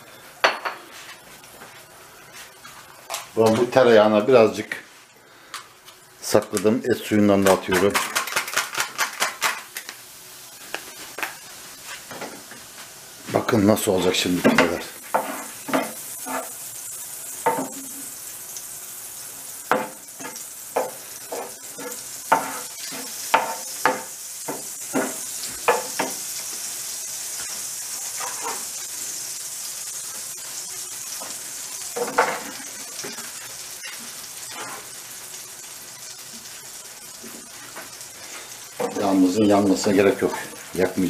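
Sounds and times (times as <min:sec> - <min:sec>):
butter and stock sizzling in pan: 0:00.0 - 0:41.0
wooden spoon scraping a pan: 0:14.4 - 0:16.7, 0:19.7 - 0:26.2, 0:27.4 - 0:28.7, 0:31.2 - 0:35.0, 0:37.2 - 0:40.9.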